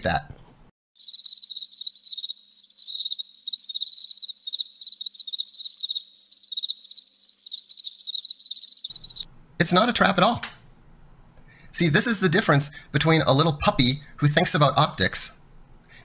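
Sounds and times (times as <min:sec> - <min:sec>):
crickets chirping: 0:01.0 - 0:09.3.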